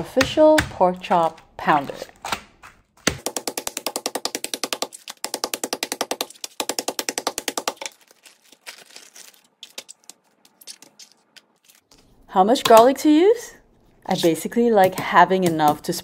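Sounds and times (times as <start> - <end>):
plastic bag rustling: 7.8 - 12.1.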